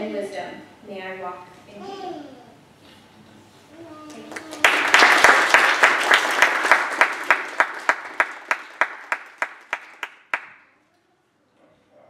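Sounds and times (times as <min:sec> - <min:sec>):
audience applauding: 0:04.1 - 0:10.6.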